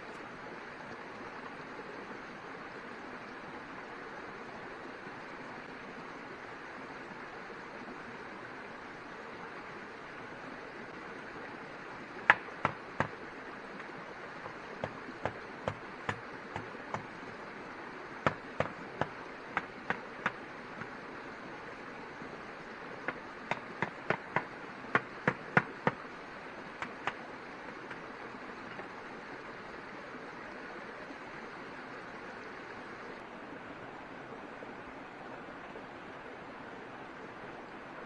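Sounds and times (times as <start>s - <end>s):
sharp knocks: 12.3s - 13.2s, 23.1s - 26.0s.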